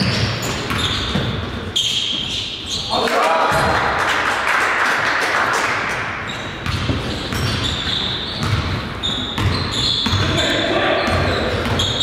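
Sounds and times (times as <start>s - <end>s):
basketball dribbling on gym floor: 0.0s - 2.2s, 6.6s - 10.4s
sneaker squeaks: 0.0s - 3.0s, 6.1s - 12.0s.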